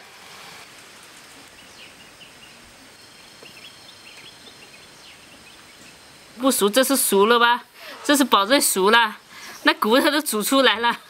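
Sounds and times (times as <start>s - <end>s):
background hiss: 0.0s - 11.0s
distant bird chirps: 1.0s - 7.2s.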